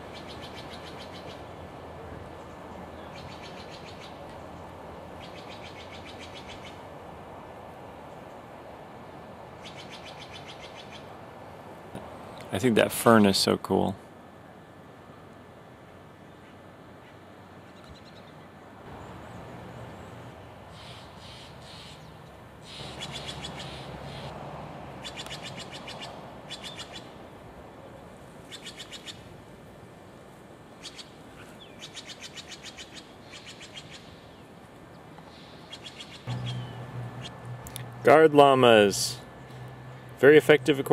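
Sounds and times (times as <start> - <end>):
steady background noise: 0.0 - 40.9
birds trilling: 17.7 - 24.4, 25.0 - 27.1, 35.3 - 40.1.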